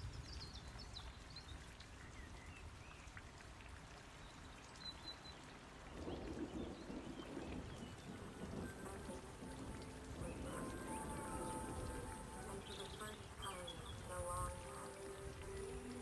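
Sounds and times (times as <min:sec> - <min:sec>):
light rain falling: 0:00.0 - 0:16.0
birds chirping: 0:04.2 - 0:16.0.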